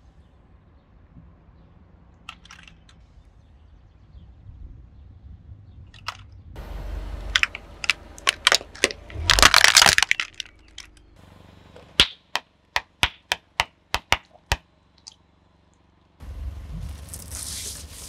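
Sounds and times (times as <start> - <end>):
sharp cracks: 7.2 - 11.2, 12.0 - 15.2
tyre crushing brittle object: 8.2 - 11.0, 16.8 - 18.0.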